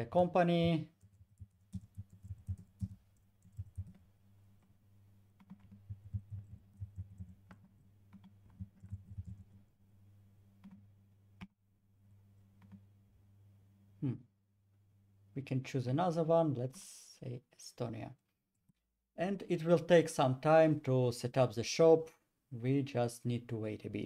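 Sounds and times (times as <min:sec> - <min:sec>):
typing on a keyboard: 0:00.9 - 0:04.0, 0:05.4 - 0:09.5.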